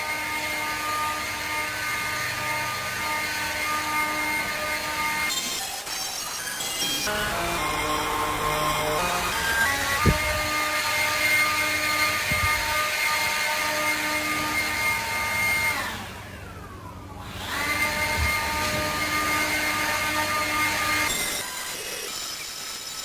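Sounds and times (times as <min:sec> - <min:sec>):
leaf blower whining: 0:00.0 - 0:22.5.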